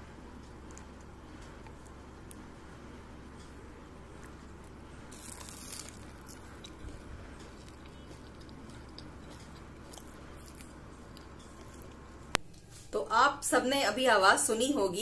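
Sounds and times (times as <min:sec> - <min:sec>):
chewing: 0:03.4 - 0:12.1
teeth crunching fried snack: 0:04.2 - 0:12.2.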